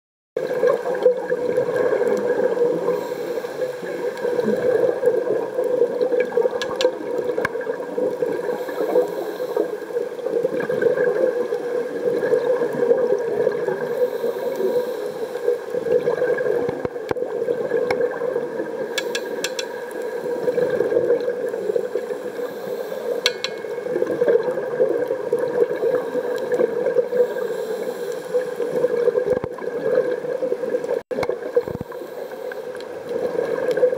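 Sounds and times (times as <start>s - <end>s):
faint clicks: 5.6s - 7.6s, 19.0s - 26.7s.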